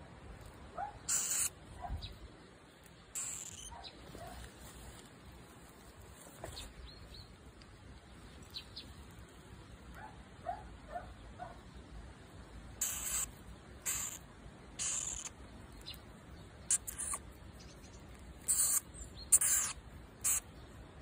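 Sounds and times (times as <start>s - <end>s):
mole squeaking: 1.0s - 2.1s, 3.1s - 4.0s, 12.8s - 14.2s, 14.8s - 16.0s, 16.7s - 20.5s
rustling in grass: 2.7s - 9.9s.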